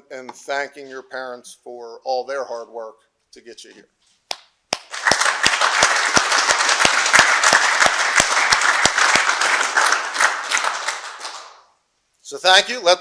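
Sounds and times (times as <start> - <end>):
close single person clapping: 4.3 - 11.6
audience applauding: 4.8 - 11.6.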